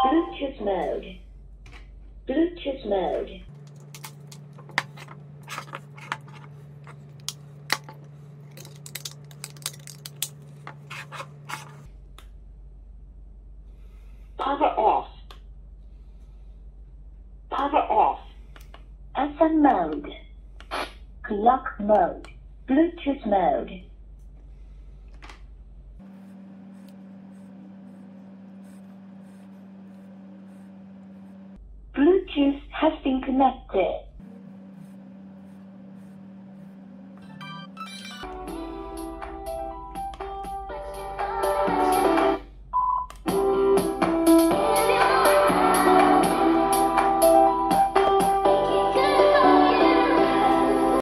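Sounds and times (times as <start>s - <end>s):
low hum: 0.0s - 39.2s.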